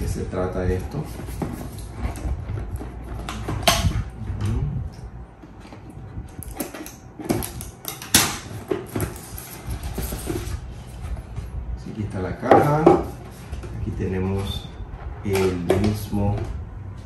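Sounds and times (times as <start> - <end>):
cardboard box rustling and scraping: 0.7 - 3.7.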